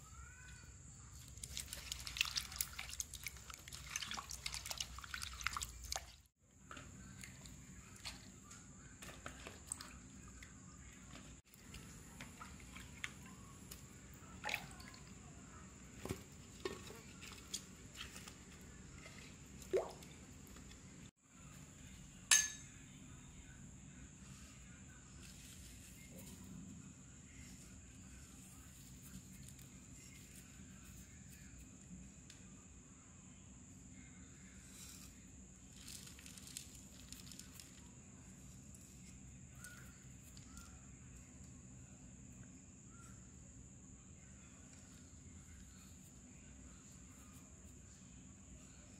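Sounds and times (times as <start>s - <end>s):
water dripping: 1.3s - 6.2s, 19.6s - 20.7s.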